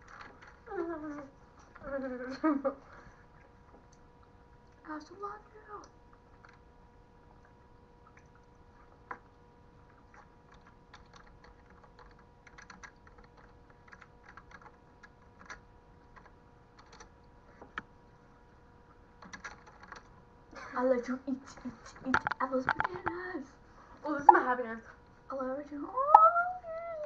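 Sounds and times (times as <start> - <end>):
faint electrical hum: 0.0 - 27.0
typing on a computer keyboard: 10.2 - 17.2, 19.2 - 20.1.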